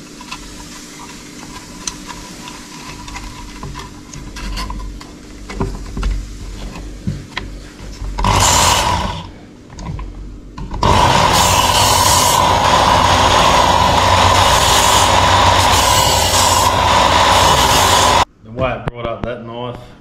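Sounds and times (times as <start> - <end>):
belt sharpener grinding knife: 8.2 - 9.2, 10.8 - 18.2.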